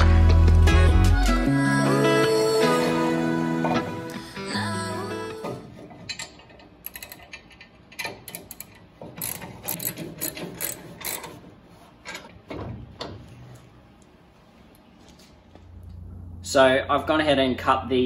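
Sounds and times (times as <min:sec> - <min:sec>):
socket ratchet clicking: 0:06.8 - 0:11.3.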